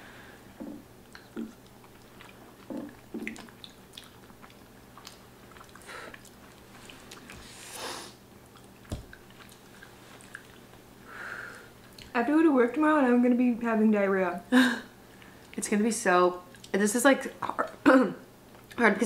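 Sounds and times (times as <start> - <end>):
chewing and wet mouth sounds: 0.6 - 7.6, 8.4 - 12.2, 15.1 - 15.6, 16.4 - 16.8, 18.5 - 18.9.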